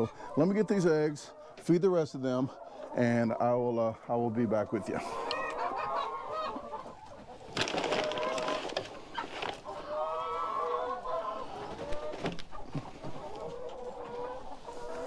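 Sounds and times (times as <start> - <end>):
hens clucking: 0.0 - 15.0
rustling scuffle: 7.5 - 9.7.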